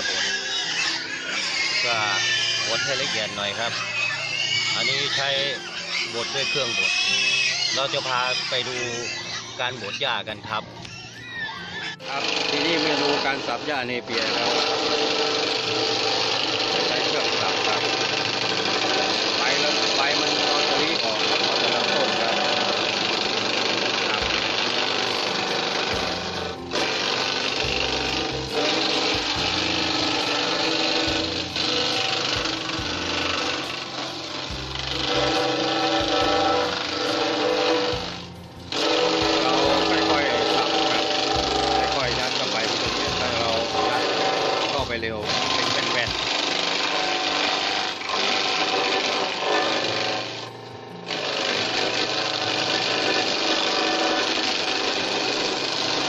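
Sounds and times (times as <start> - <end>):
grass chopper running: 0.0 - 10.4, 11.9 - 56.0
machine hum: 11.8 - 56.0.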